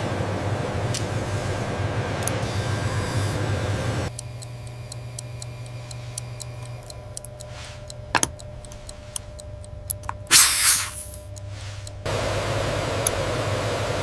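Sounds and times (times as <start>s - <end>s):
low steady hum: 0.0s - 14.0s
watch ticking: 4.1s - 12.1s
burst of hiss: 10.3s - 11.2s.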